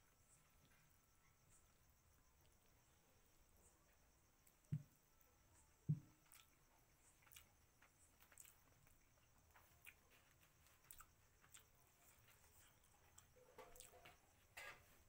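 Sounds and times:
soft chewing: 5.5 - 14.8
dull low thump: 5.9 - 6.1.

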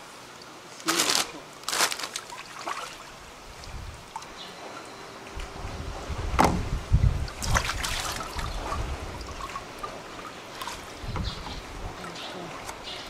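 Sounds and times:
wet rustling: 0.8 - 4.3, 7.2 - 13.0
heavy knocks: 6.3 - 6.8.

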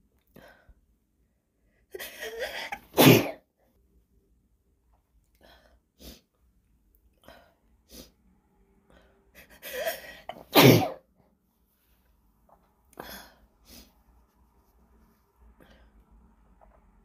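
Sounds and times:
woman sneezing: 2.3 - 3.4, 9.8 - 11.0.

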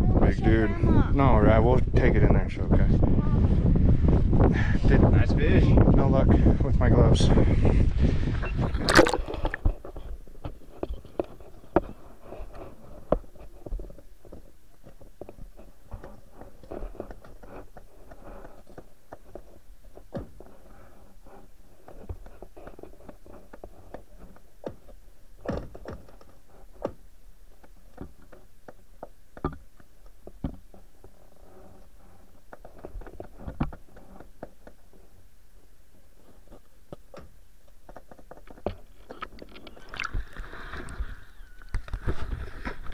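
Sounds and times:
muffled clicks and taps: 8.8 - 31.2.

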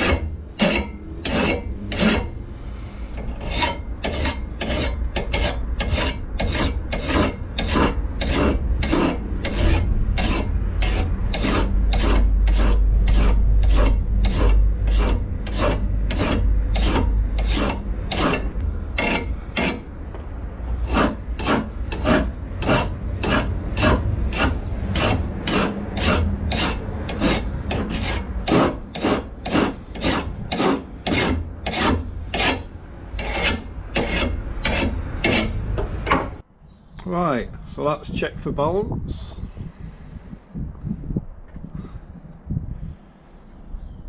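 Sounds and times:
hand file rasping on steel blade: 0.0 - 2.3, 3.2 - 19.9, 20.7 - 35.6.

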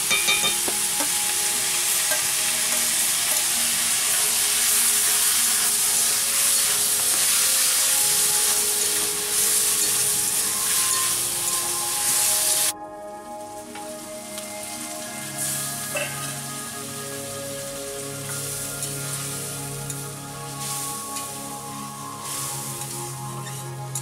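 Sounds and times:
metal spatula stirring in wok: 0.0 - 11.7
vegetables sizzling in hot oil: 0.0 - 12.7, 14.0 - 24.0.

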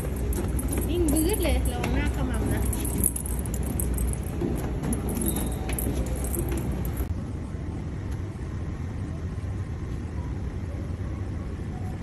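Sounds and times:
airliner cabin rumble and hiss: 4.6 - 12.0.

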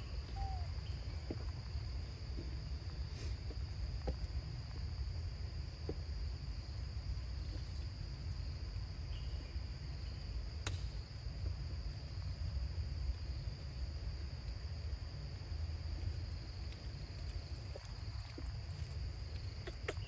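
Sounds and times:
insects droning: 0.0 - 20.0.

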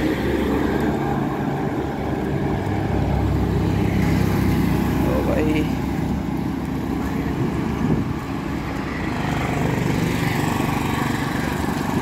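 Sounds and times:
wind buffeting microphone: 5.8 - 12.0.

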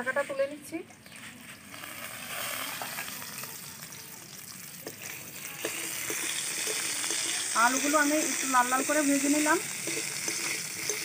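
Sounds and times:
potatoes sizzling in oil: 1.4 - 11.0
spatula scraping pan: 5.0 - 11.0.

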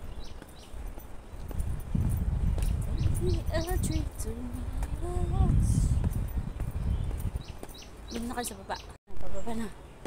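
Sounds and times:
footsteps on a trail: 0.0 - 8.8
low microphone rumble: 1.4 - 7.6.

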